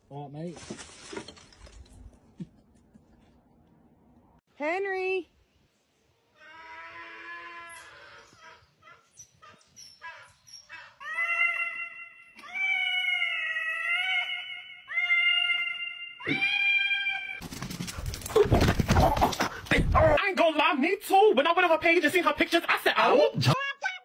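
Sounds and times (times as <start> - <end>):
cat meowing into microphone: 15.0 - 17.4.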